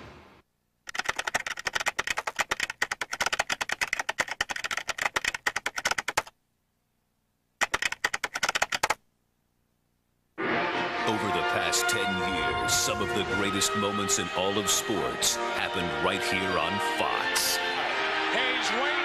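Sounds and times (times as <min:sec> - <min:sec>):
keyboard typing clicks: 0:00.9 - 0:06.3, 0:07.6 - 0:09.0.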